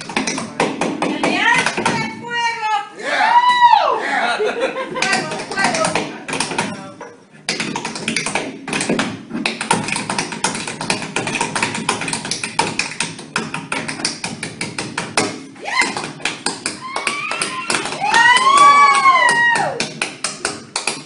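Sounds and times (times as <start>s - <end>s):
tap shoes on wooden floor: 5.0s - 6.9s, 7.5s - 21.0s.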